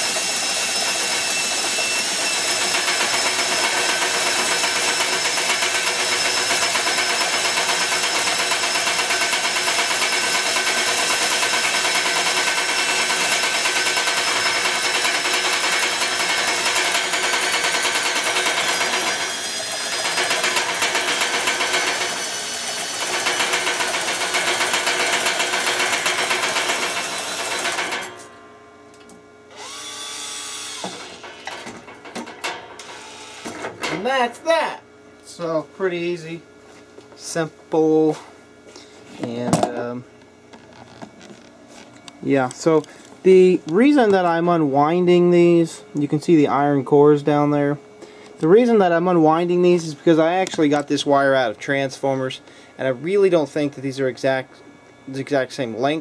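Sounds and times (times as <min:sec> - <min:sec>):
cordless drill whining: 0:00.0 - 0:28.0, 0:29.5 - 0:31.7, 0:32.8 - 0:33.6.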